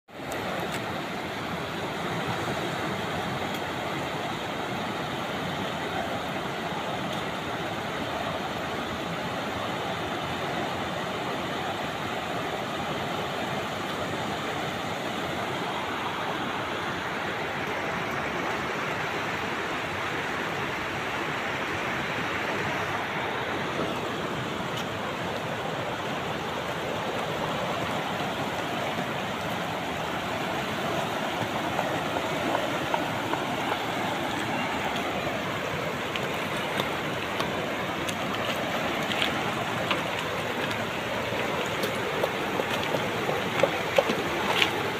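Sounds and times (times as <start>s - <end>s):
fast-flowing river rushing: 0.1s - 44.9s
light water splashes: 0.1s - 44.9s
water pouring over weir: 33.6s - 44.9s.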